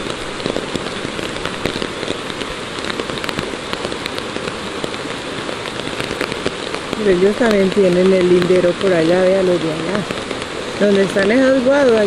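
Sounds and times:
creek rushing over stones: 0:00.0 - 0:12.0.

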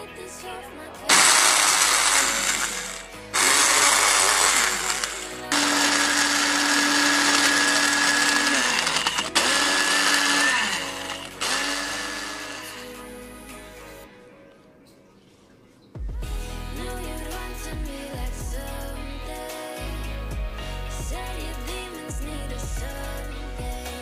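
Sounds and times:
blender grinding biscuits: 0:01.1 - 0:13.0.

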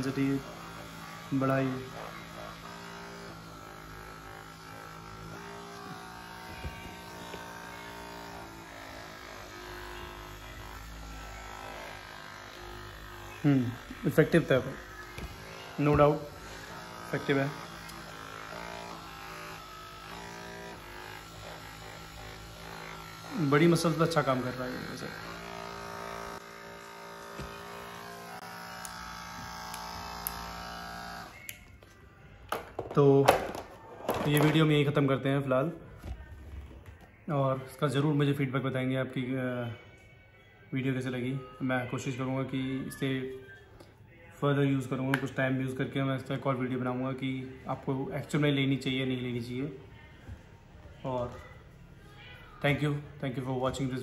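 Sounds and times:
massage gun motor buzz: 0:00.0 - 0:31.6.

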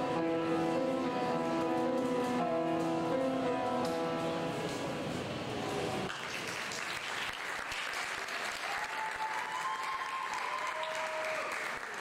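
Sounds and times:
piano chord ringing: 0:00.0 - 0:05.0
audience applause: 0:06.0 - 0:12.0.

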